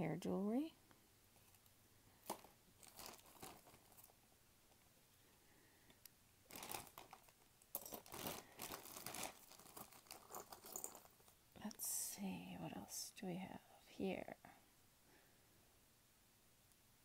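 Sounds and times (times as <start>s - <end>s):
plastic bag crinkling: 1.5s - 4.2s, 6.5s - 11.4s.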